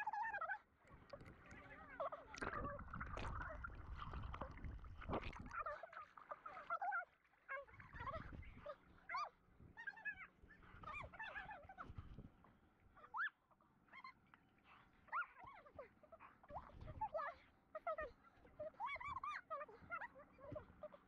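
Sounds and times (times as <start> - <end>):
water and wind rumble: 1.0 - 6.4, 7.7 - 9.8.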